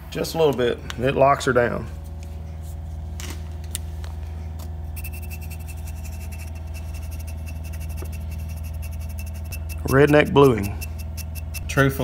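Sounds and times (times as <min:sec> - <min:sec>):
electric motor hum: 0:04.7 - 0:12.0
heat gun whine: 0:06.3 - 0:11.9.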